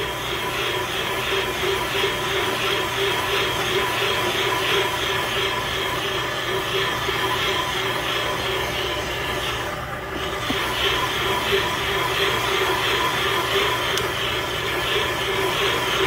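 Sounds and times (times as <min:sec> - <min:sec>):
motor hum and whir: 0:00.0 - 0:16.0.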